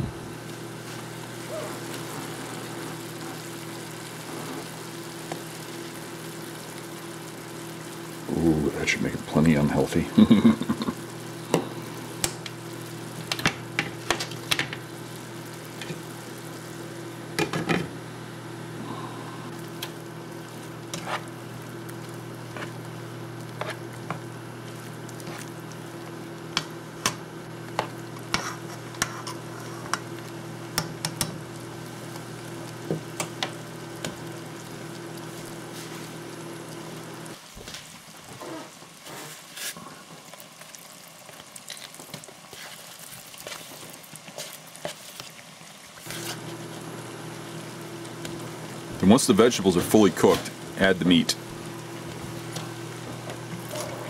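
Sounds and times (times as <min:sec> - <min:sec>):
steady low hum: 0:00.0 - 0:37.4
vegetables sizzling in a frying pan: 0:00.0 - 0:54.0
spatula scraping a pan: 0:20.9 - 0:21.4, 0:22.5 - 0:22.8, 0:23.5 - 0:24.2, 0:27.8 - 0:30.0.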